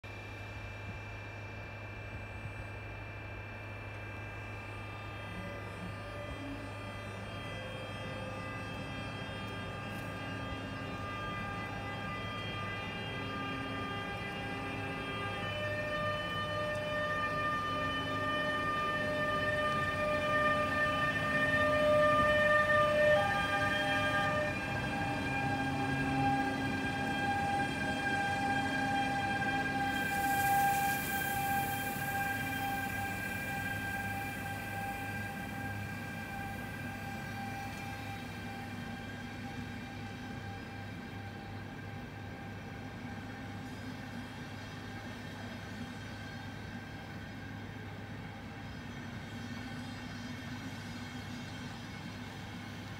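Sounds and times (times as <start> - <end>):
electric locomotive humming: 0.0 - 52.9
high whining traction tones: 4.6 - 41.1
high hiss: 29.9 - 35.6.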